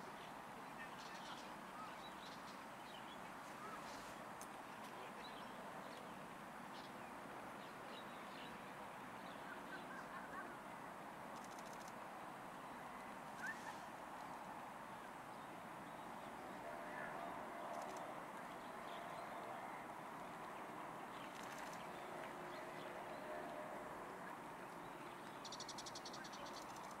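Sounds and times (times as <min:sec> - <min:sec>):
steady background hiss: 0:00.0 - 0:27.0
distant bird calls: 0:12.9 - 0:15.1.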